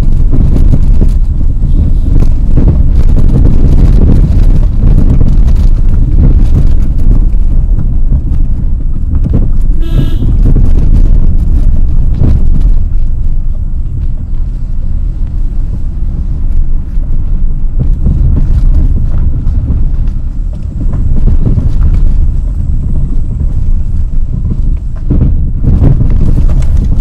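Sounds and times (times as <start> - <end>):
car engine and tyres rumbling: 0.0 - 27.0
car horn toot: 9.8 - 10.5.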